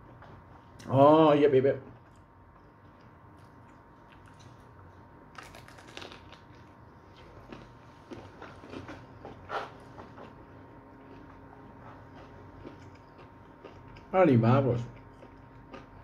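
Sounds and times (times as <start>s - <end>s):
crunchy chewing of fried chicken: 1.9s - 16.0s.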